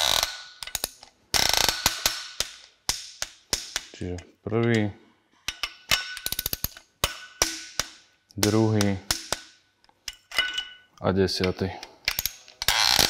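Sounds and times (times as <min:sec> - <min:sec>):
torque wrench ratchet clicks: 0:00.0 - 0:02.5.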